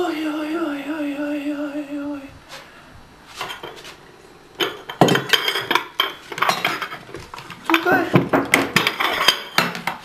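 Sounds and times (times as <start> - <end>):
porcelain plates clinking: 4.6 - 10.0.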